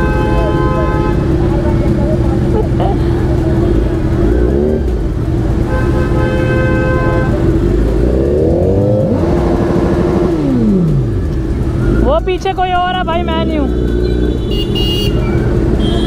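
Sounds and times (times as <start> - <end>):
vehicle horn: 0.0 - 1.6, 5.6 - 7.7, 13.6 - 16.0
motorcycle engine revving: 0.0 - 16.0.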